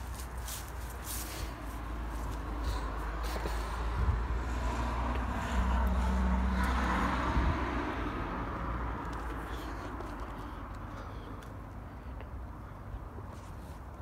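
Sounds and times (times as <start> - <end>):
vehicle passing rumble: 0.0 - 13.8.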